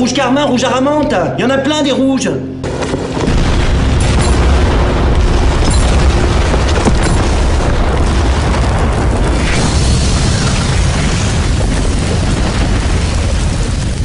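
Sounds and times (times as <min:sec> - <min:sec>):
explosion rumbling: 0:03.0 - 0:14.0.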